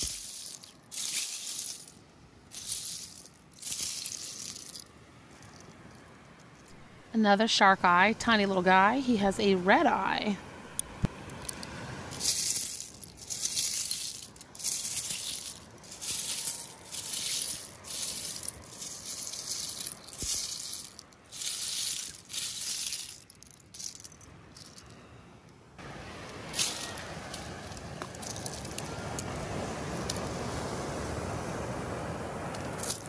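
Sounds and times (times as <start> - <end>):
footsteps crunching on seashells: 0.0 - 6.8, 11.3 - 24.9, 26.2 - 29.4.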